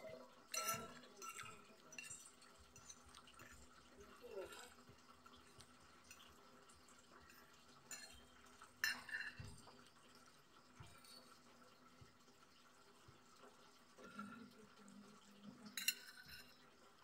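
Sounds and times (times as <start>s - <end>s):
cutlery clinking on glass plate: 0.5s - 3.6s, 7.3s - 9.7s, 15.6s - 16.6s.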